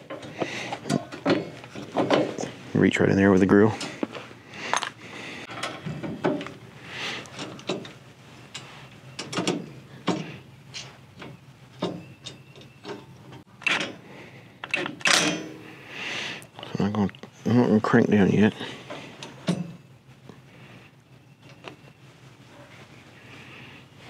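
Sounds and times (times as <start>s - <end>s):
metal clicks and knocks: 0.0s - 2.5s, 9.2s - 10.3s, 14.6s - 15.6s
soft rustling: 21.8s - 24.0s.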